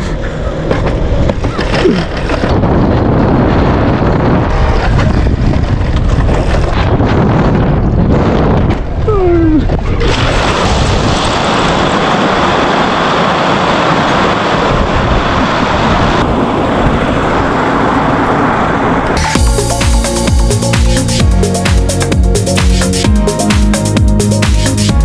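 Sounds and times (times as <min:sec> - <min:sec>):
wind rushing on microphone: 0:00.0 - 0:19.2
electronic music: 0:19.2 - 0:25.0.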